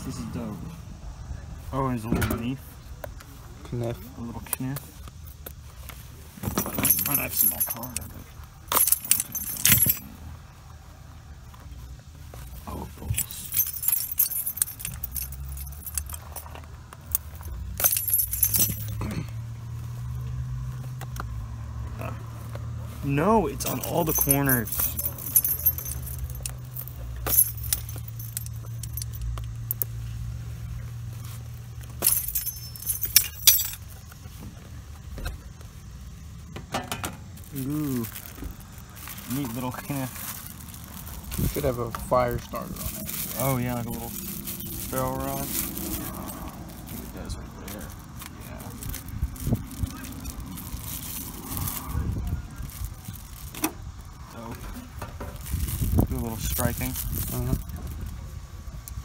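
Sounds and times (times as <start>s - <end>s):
small metal items jingling: 4.4s - 10.3s, 11.5s - 21.2s, 21.8s - 59.0s
plastic wrapping handling noise: 37.2s - 59.0s
steady low rumble: 37.3s - 59.0s.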